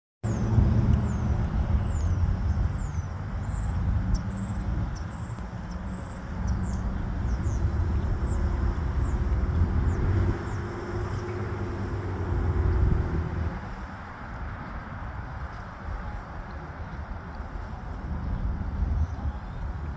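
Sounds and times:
road traffic rumble: 0.2s - 19.9s
bird chirping: 0.3s - 11.6s.

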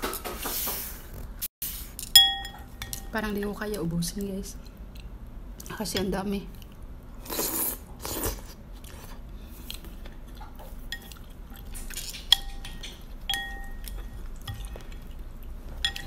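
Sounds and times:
chopsticks and spoon clinking in bowl: 2.0s - 3.2s, 10.9s - 16.0s
noodles slurped: 7.2s - 9.8s.

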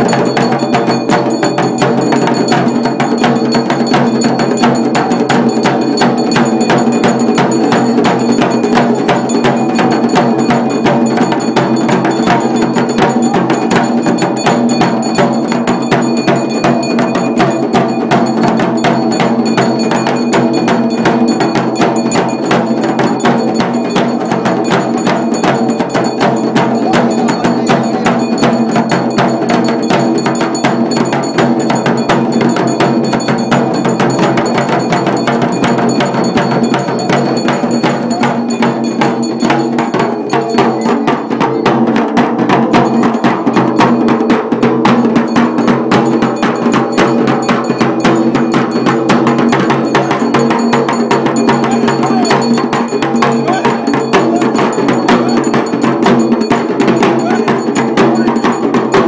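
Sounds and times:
rapid barrel drumming: 0.0s - 59.0s.

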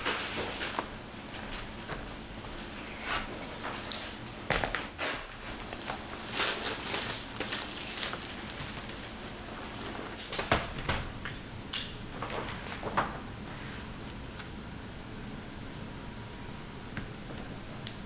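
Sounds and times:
cardboard crinkling and scraping: 5.0s - 10.5s.

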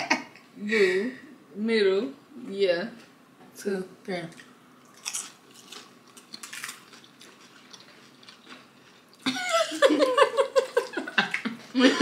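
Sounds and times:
people chewing and crunching chips: 4.3s - 9.6s.

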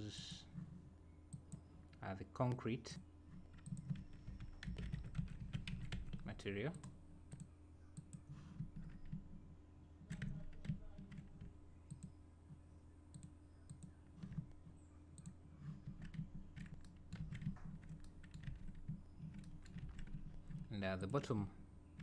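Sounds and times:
low steady hum: 0.0s - 22.0s
computer mouse clicks: 3.5s - 9.2s, 10.1s - 12.2s.

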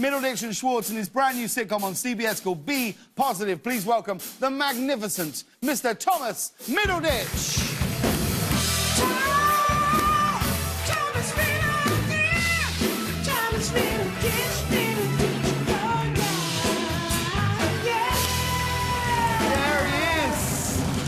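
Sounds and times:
band playing upbeat rock: 1.8s - 21.0s
person singing: 8.9s - 20.8s.

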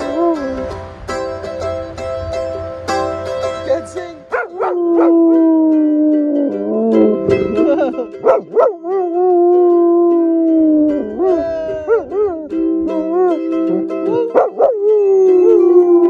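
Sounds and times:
mandolin strummed chords: 0.0s - 16.0s
dog howling: 4.3s - 7.2s, 8.2s - 16.0s.

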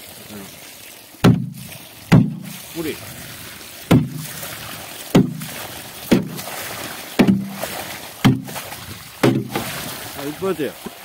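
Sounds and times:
water gushing from bathtub: 0.0s - 11.0s
hollow knocks on bathtub: 1.2s - 2.5s, 3.9s - 4.3s, 5.1s - 5.5s, 6.1s - 6.5s, 7.2s - 8.6s, 9.2s - 9.8s.

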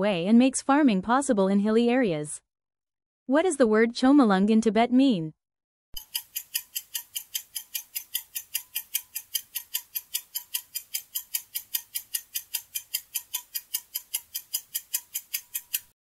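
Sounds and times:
clock ticking quickly: 6.0s - 16.0s.

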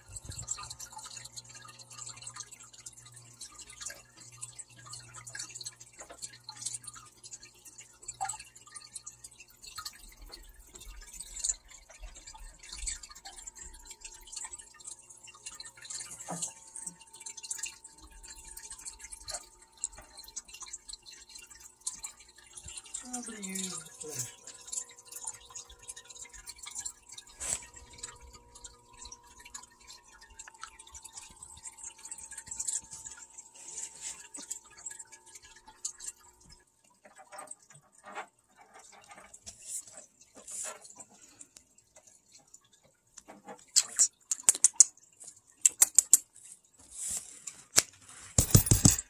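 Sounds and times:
water dripping and trickling: 0.0s - 49.0s
sharp clicks and taps: 45.6s - 46.3s.

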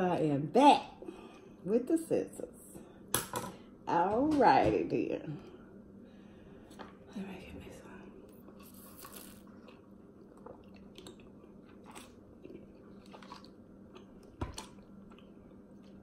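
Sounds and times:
faint steady hum: 0.0s - 16.0s
quiet chewing: 8.2s - 16.0s.

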